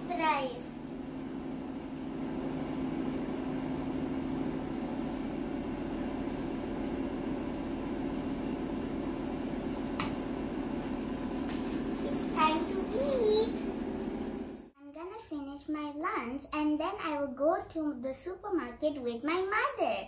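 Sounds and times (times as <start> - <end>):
fan humming: 0.0 - 14.8.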